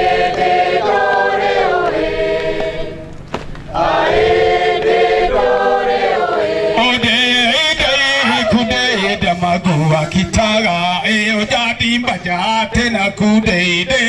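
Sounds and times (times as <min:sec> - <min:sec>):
group chanting unaccompanied: 0:00.0 - 0:03.1, 0:03.7 - 0:10.4.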